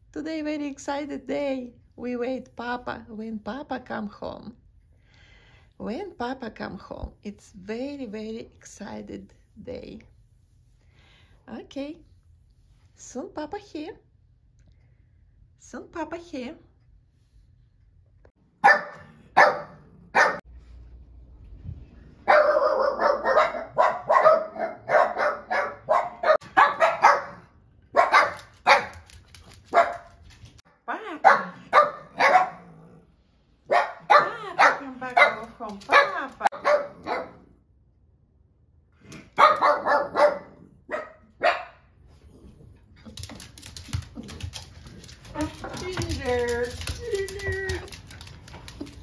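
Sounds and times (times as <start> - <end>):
small dog barking: 18.6 - 20.4, 22.2 - 29.0, 29.7 - 30.1, 31.2 - 32.8, 33.7 - 37.5, 39.3 - 41.9.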